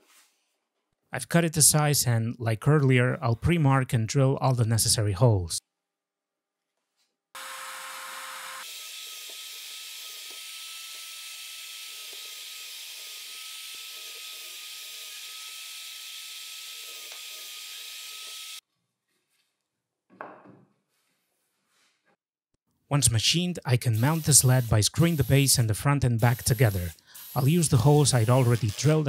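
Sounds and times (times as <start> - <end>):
drill bit cutting plywood: 7.4 - 18.6, 27.4 - 29.0
plywood handled on bench: 20.1 - 20.8.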